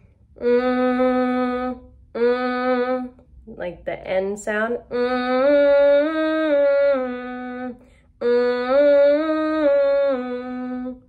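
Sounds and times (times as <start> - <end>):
woman humming a scale: 0.4 - 3.1, 4.9 - 11.0.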